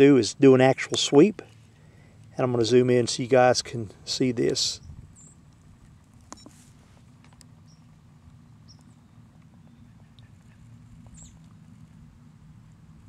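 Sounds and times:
steady low rumble: 0.0s - 13.0s
small ticks: 7.2s - 12.0s.

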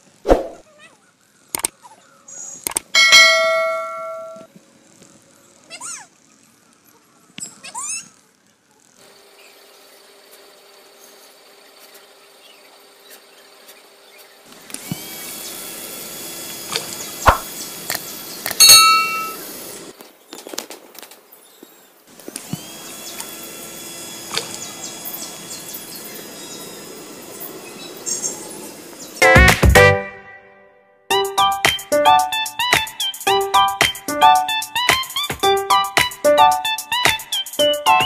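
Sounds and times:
sharp clicks: 1.5s - 1.8s, 2.6s - 2.9s
small motors whirring: 4.8s - 20.0s, 22.1s - 29.2s.

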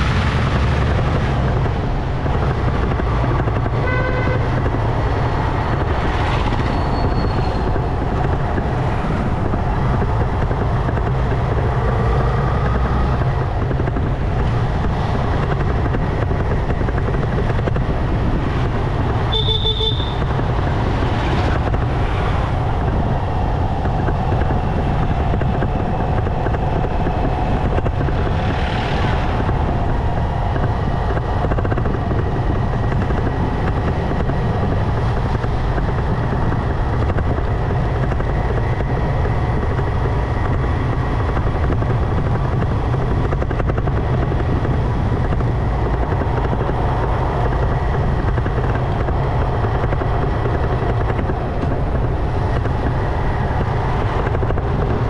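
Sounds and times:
motorcycle running: 0.0s - 55.0s
wind rumble on microphone: 0.0s - 55.0s
vehicle horn toots: 3.8s - 4.6s, 19.3s - 20.3s.

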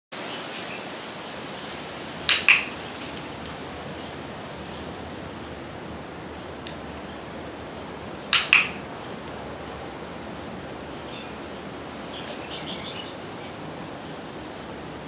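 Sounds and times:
steady background hiss: 0.2s - 15.0s
training clicker clicks: 2.2s - 2.8s, 8.2s - 10.3s.

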